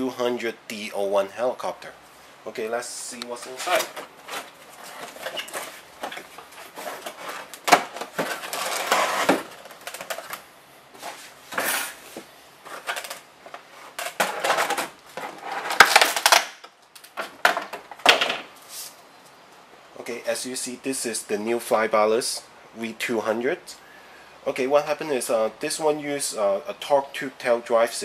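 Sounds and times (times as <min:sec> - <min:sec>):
cardboard box rustling and scraping: 0:03.6 - 0:09.6.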